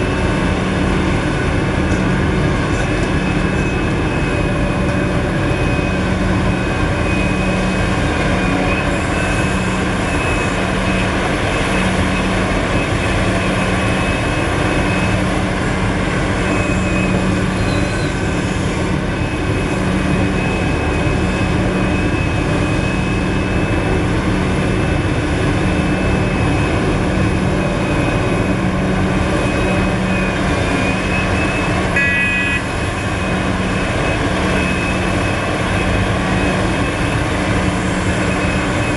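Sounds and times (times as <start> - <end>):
excavator diesel engine drone: 0.0 - 38.9
short tone: 16.4 - 18.3, 29.4 - 37.3.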